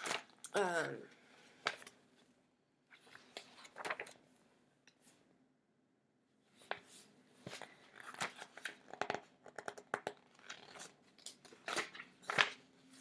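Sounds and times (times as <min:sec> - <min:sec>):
book pages turning: 0:00.0 - 0:00.4, 0:01.5 - 0:02.0, 0:02.9 - 0:04.2, 0:06.6 - 0:13.0.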